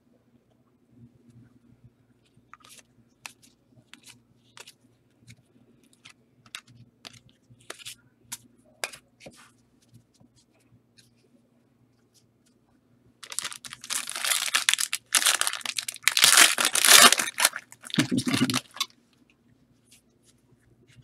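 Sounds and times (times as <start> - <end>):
trading cards clicking and rustling: 13.2 - 18.8.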